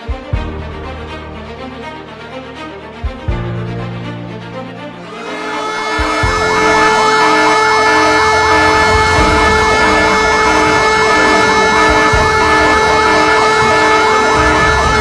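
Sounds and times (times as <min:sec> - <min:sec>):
emergency siren yelping: 0:05.1 - 0:15.0
low thumps: 0:05.8 - 0:15.0.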